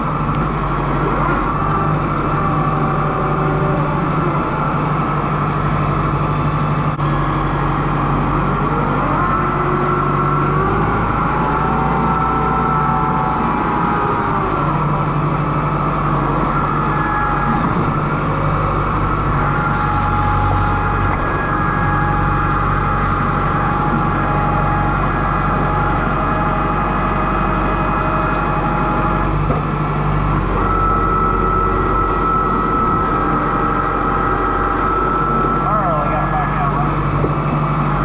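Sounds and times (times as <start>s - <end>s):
tractor diesel engine running: 0.0s - 38.0s.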